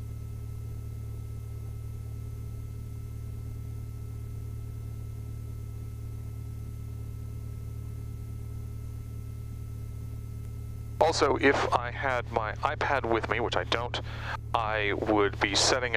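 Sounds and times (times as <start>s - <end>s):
aircraft engine idling: 10.7s - 15.9s.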